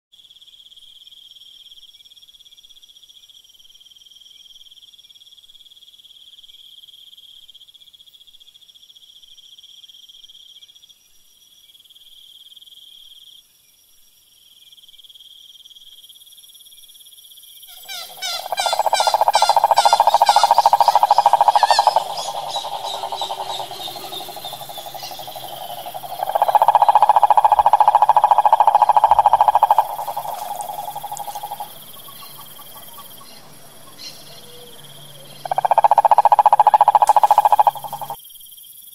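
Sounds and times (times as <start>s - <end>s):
high trilling of insects: 17.8s - 38.2s
toad calling low trill: 17.8s - 38.2s.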